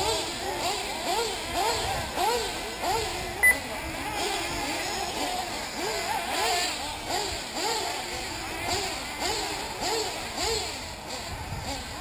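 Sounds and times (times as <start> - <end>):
rc buggy engines revving: 0.0 - 12.0
sharp engine blip: 3.4 - 3.6.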